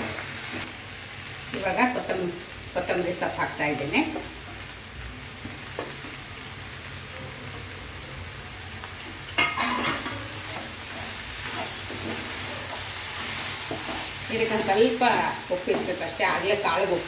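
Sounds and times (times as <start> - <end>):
food sizzling in a pan: 0.0 - 17.0
metal spatula scraping a pan: 9.4 - 14.8.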